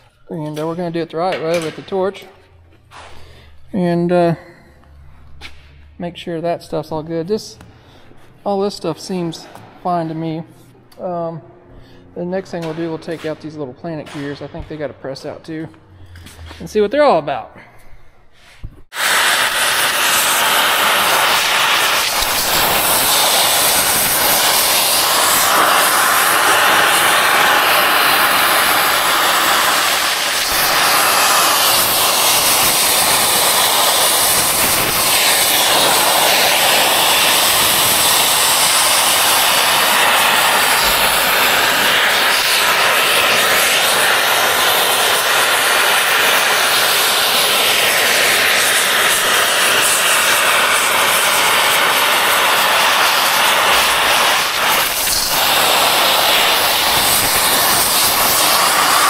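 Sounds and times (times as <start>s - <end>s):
torch burning with loud hiss: 18.9s - 59.0s.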